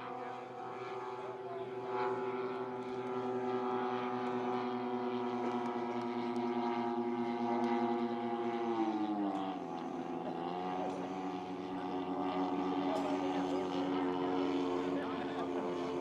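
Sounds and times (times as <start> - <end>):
model plane engines buzzing: 0.0 - 16.0.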